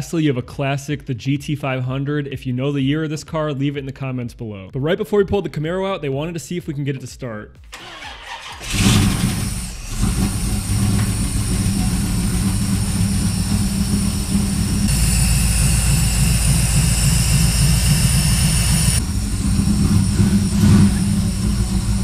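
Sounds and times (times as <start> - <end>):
car engine idling: 7.7 - 22.0
high whine: 8.7 - 22.0.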